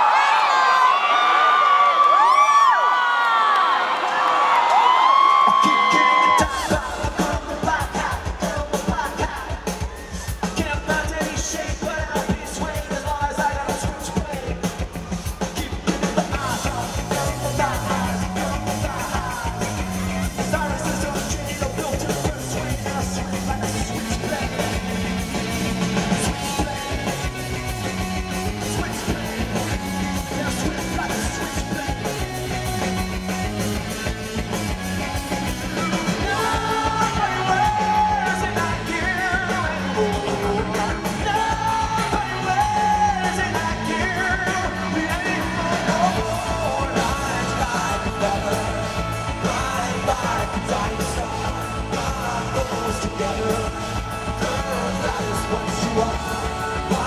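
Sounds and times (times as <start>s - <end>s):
man singing: 5.4s - 34.8s, 35.4s - 57.0s
rock band playing live: 5.4s - 57.0s.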